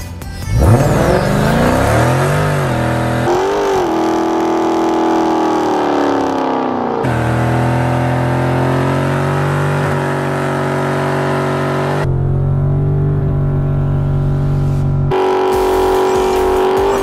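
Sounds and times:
car engine at high revs: 0.5 - 17.0.

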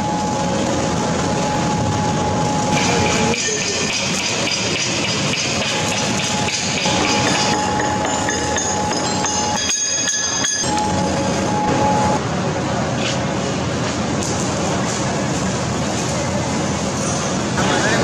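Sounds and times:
welding arc crackling and hissing: 0.0 - 9.5
workshop machinery hum: 0.0 - 18.0.

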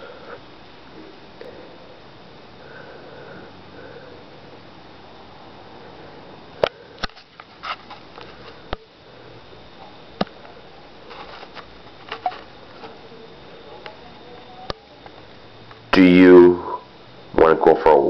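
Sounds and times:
soft hissy noises: 5.1 - 15.9.

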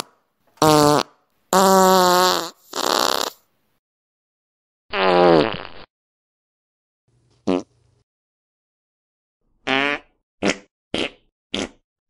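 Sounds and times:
fart sounds: 0.6 - 3.5, 4.9 - 5.9, 7.4 - 7.7, 9.7 - 11.8.

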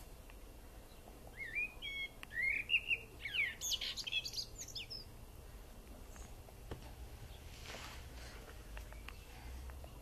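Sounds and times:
small bird singing: 0.0 - 5.2, 8.8 - 10.0.

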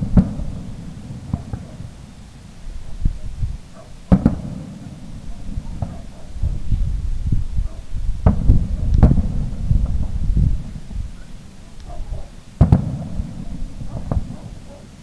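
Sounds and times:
firework shells booming: 0.0 - 2.6, 3.6 - 6.6, 8.1 - 11.6, 12.2 - 15.0
low rumbling echo: 0.0 - 14.6.

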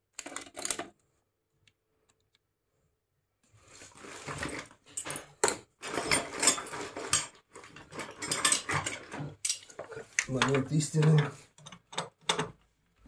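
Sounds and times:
metal hand tools clinking: 5.0 - 12.0.

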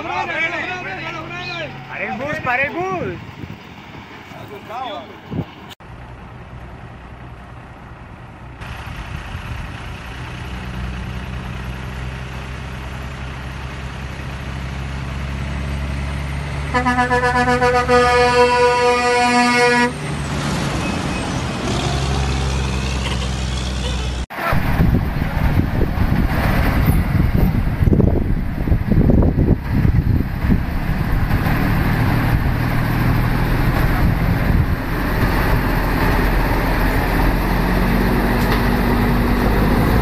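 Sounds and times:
truck diesel engine passing: 0.0 - 40.0
truck horn blast: 16.7 - 20.0.

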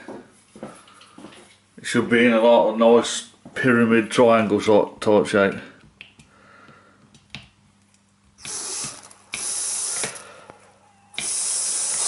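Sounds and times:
aerosol spray hissing: 8.4 - 10.2, 11.2 - 12.0.

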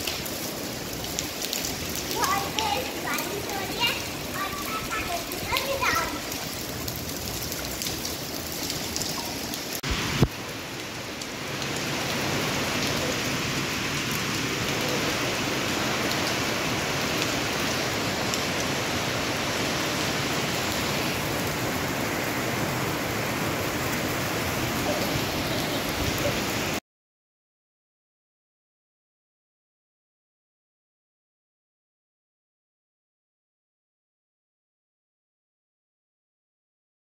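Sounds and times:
water rushing: 0.0 - 26.8.

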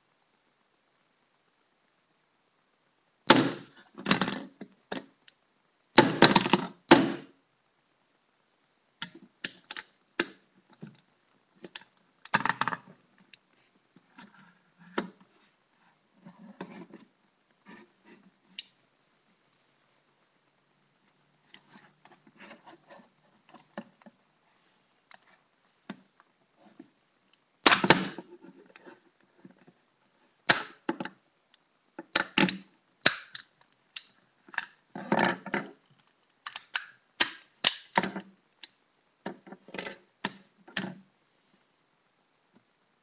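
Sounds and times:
plastic remote being smashed: 3.3 - 4.4, 6.0 - 7.2, 27.6 - 28.2, 30.5 - 30.9, 32.1 - 33.5, 36.4 - 38.1.

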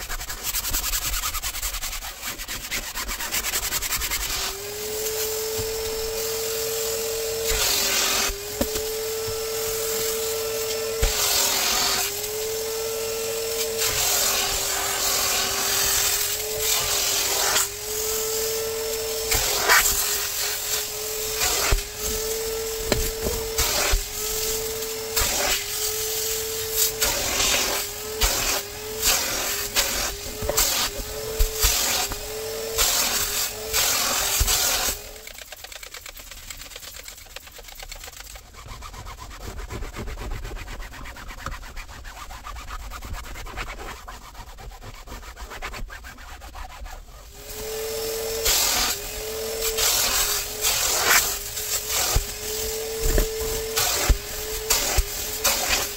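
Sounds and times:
suction hissing on cloth: 0.0 - 38.3, 47.3 - 55.9
vacuum motor running: 3.6 - 35.7, 47.3 - 55.9.

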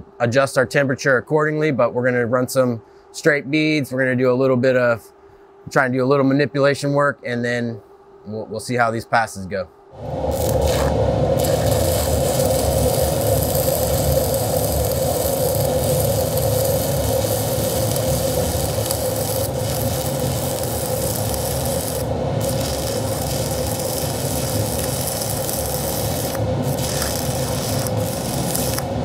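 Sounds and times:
welding arc crackling and hissing: 10.0 - 29.0.

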